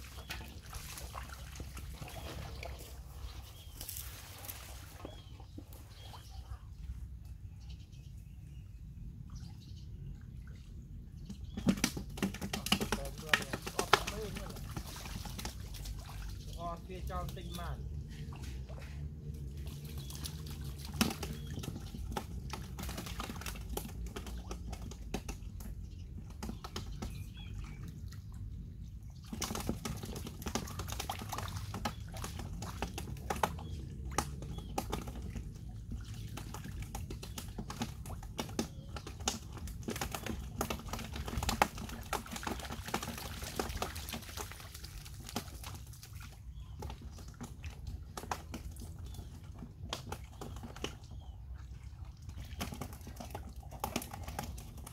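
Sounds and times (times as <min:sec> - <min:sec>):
water splats and drips: 0:00.0 - 0:06.3, 0:11.1 - 0:54.9
splashing in shallow muddy water: 0:00.0 - 0:07.2, 0:09.1 - 0:54.9.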